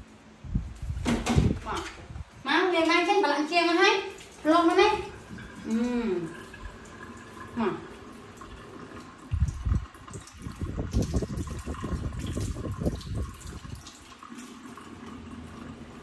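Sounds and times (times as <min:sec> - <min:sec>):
water splashing: 0:02.8 - 0:16.0
faucet running into steel sink: 0:03.7 - 0:16.0.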